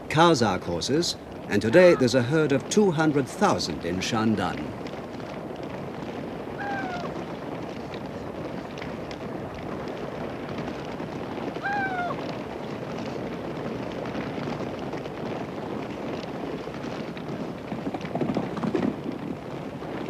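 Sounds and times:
many horse hooves on pasture: 0:00.0 - 0:20.0
short falling horse call: 0:06.6 - 0:07.2, 0:11.6 - 0:12.3.

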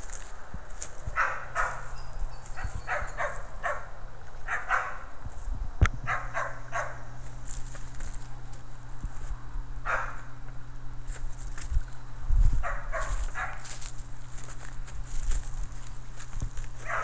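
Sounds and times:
dog barking: 0:01.1 - 0:01.9, 0:02.6 - 0:05.1, 0:06.1 - 0:07.1, 0:09.8 - 0:10.3, 0:12.6 - 0:13.7.

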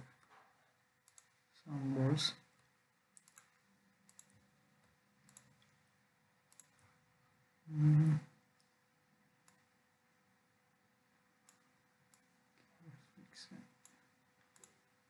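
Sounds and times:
faint steady hum: 0:00.0 - 0:15.0
computer mouse clicks: 0:01.0 - 0:01.4, 0:02.6 - 0:05.8, 0:06.5 - 0:06.8, 0:09.4 - 0:09.7, 0:11.4 - 0:12.7, 0:13.8 - 0:14.9.

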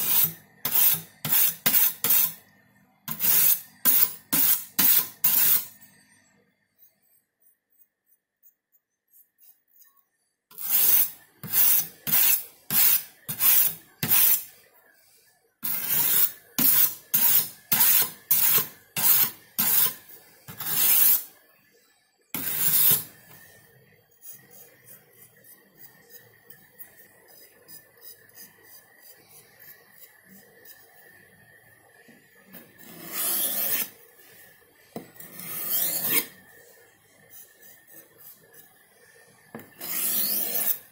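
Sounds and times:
knife rasping on sharpening plate: 0:00.0 - 0:02.4, 0:03.1 - 0:05.7, 0:08.4 - 0:14.5, 0:15.6 - 0:21.3, 0:22.4 - 0:23.1, 0:32.8 - 0:34.0, 0:35.2 - 0:36.4, 0:39.8 - 0:40.9.

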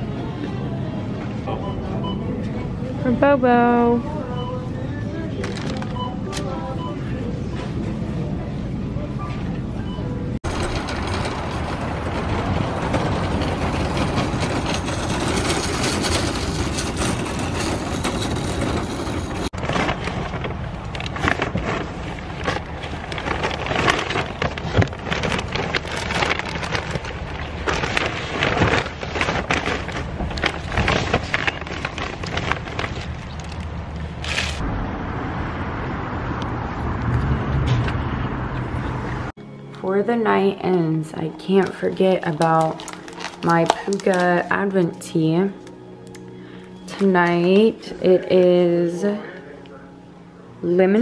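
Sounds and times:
shopping cart rattling: 0:10.4 - 0:34.6
paper bags crinkling: 0:13.9 - 0:34.6, 0:41.6 - 0:44.8.

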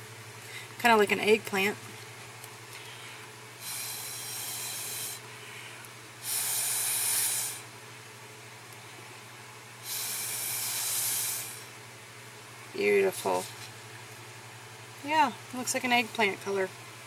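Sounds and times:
air hissing through straw: 0:03.6 - 0:07.7, 0:09.8 - 0:11.7.

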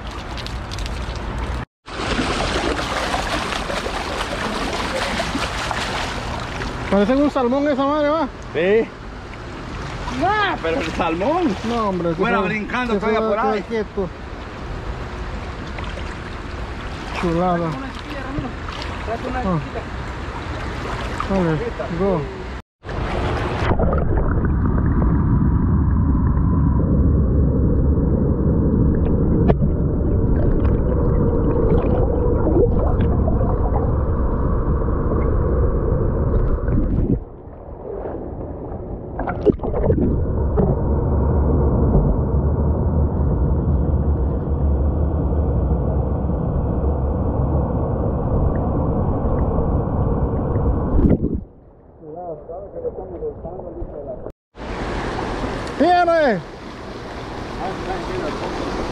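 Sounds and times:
underwater river rumble: 0:00.0 - 0:07.4, 0:22.8 - 0:55.7, 0:56.4 - 0:58.9.

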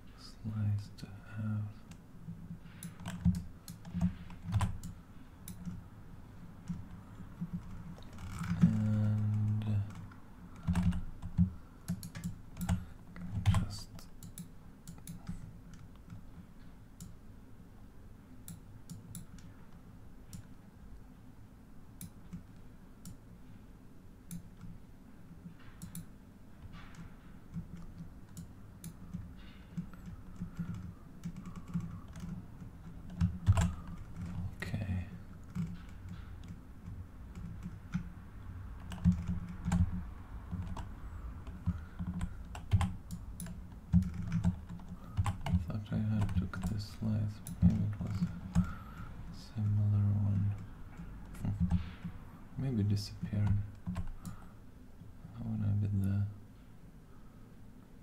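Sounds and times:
low steady hum: 0:00.0 - 0:58.0
computer keyboard typing: 0:02.8 - 0:05.8, 0:06.6 - 0:16.2, 0:25.8 - 0:26.1, 0:26.8 - 0:34.6, 0:35.4 - 0:38.1, 0:38.8 - 0:49.0, 0:49.6 - 0:52.2, 0:53.4 - 0:54.4.

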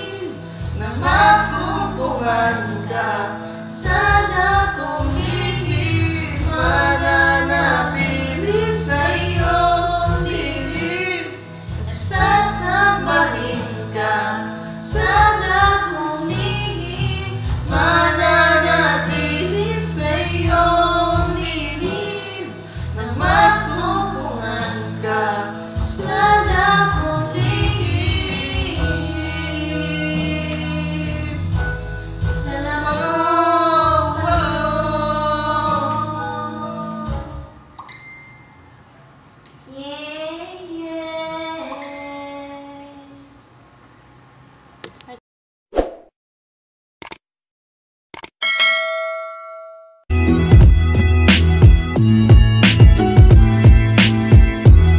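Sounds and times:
backing track with bass: 0:00.0 - 0:14.2, 0:14.9 - 0:36.4, 0:50.1 - 0:54.9
man and woman singing duet: 0:00.0 - 0:37.5.

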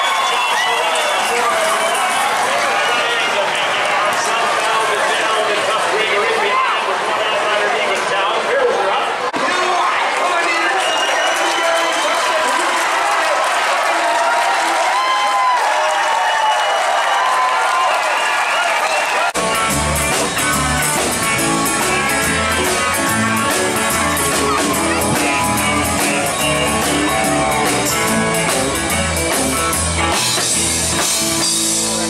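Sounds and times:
crowd voices: 0:00.0 - 0:32.0
live country-rock band: 0:19.3 - 0:32.0.

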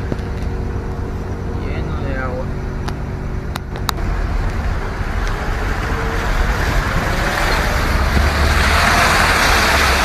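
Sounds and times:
low rumble: 0:00.0 - 0:10.0
car splashing through water: 0:05.6 - 0:10.0.

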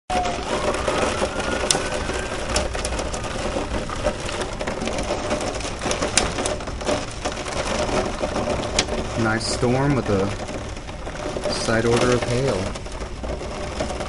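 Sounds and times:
heavy rain and hail pelting: 0:00.1 - 0:14.0.

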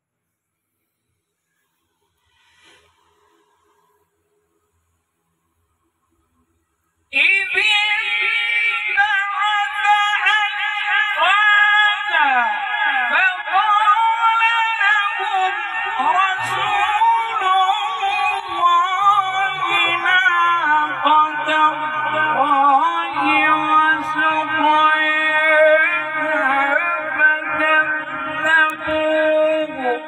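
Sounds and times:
man reciting melodically: 0:07.1 - 0:30.0.

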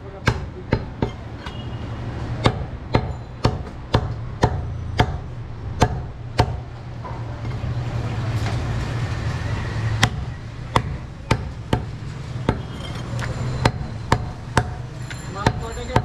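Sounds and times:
cleaver chopping ribs on wood: 0:00.2 - 0:01.2, 0:02.4 - 0:06.7, 0:10.0 - 0:12.6, 0:13.6 - 0:14.8.

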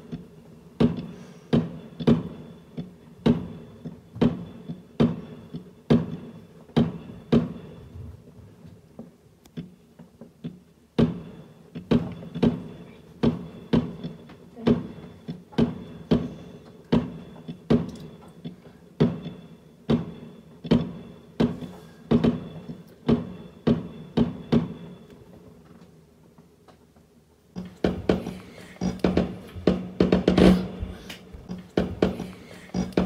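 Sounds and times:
drum-led music: 0:27.6 - 0:33.0.

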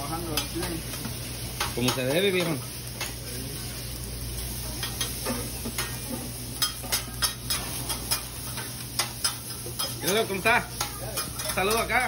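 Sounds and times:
food sizzling on griddle: 0:00.0 - 0:12.0
metal spatulas scraping and clicking: 0:06.6 - 0:12.0.

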